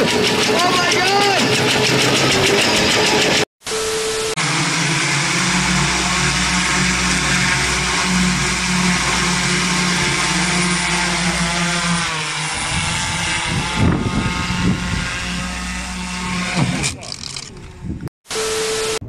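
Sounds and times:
drone rotors whirring: 0.0 - 19.0
loud low rumbles: 4.4 - 16.0.

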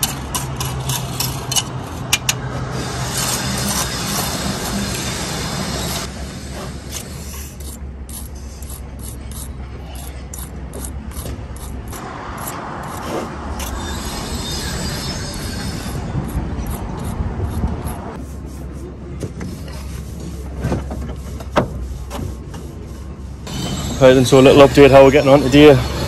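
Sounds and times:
hand tool scraping mortar: 0.0 - 18.1.

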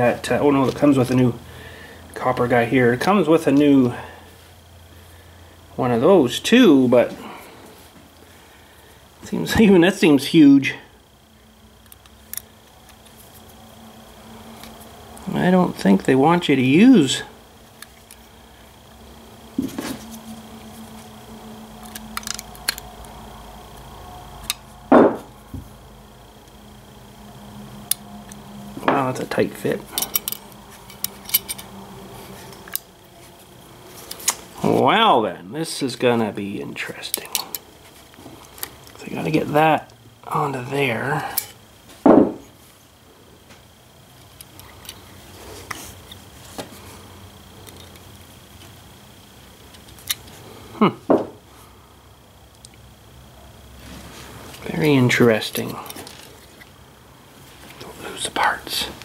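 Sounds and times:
steady background hum: 0.0 - 59.0
metal parts clicking and tapping: 21.8 - 22.8, 30.0 - 31.7
knock on workbench: 24.9 - 25.2, 42.0 - 42.4, 51.1 - 51.4.

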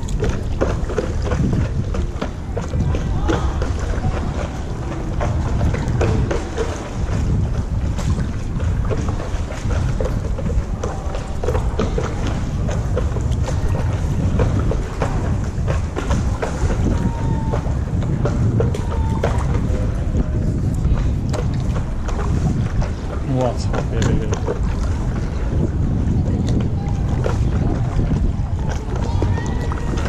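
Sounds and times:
paddle splashing water: 0.0 - 30.0
wind noise on microphone: 0.0 - 30.0.

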